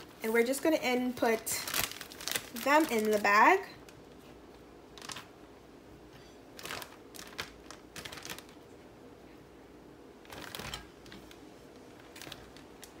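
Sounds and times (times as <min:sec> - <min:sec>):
plastic bag rustling: 0:00.0 - 0:04.2, 0:05.0 - 0:05.3, 0:06.5 - 0:08.7, 0:10.2 - 0:13.0.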